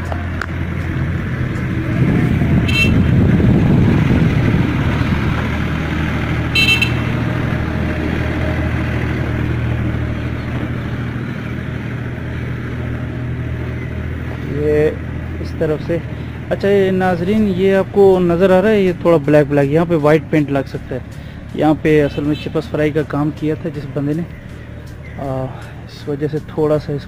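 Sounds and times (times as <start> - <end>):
high-pitched horn toots: 2.6 - 3.2, 6.5 - 7.2.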